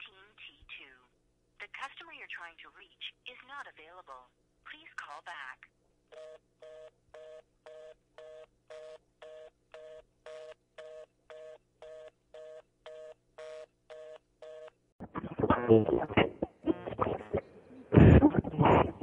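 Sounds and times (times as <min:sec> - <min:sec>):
telephone busy tone beeps: 0:06.1 - 0:14.7.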